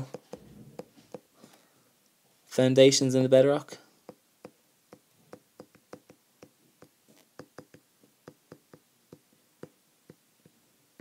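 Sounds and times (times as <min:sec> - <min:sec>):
stylus tapping on glass screen: 0:04.1 - 0:11.0.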